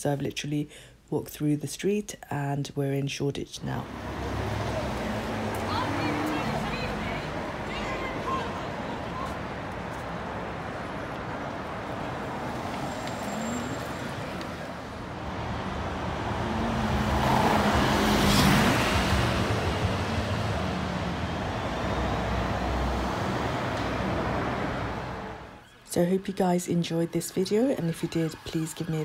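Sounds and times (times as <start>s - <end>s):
road traffic noise: 3.6s - 29.0s
motor vehicle passing close: 3.8s - 25.6s.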